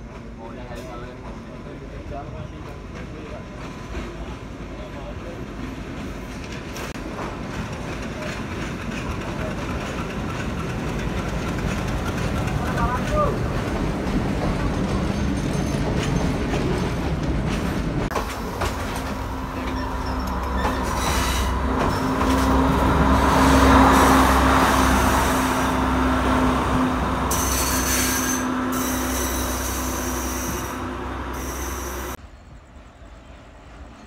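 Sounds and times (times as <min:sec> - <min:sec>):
train wheels rumbling on rails: 0:00.0 - 0:32.2
high wheel squeals: 0:19.0 - 0:22.8, 0:27.3 - 0:32.2.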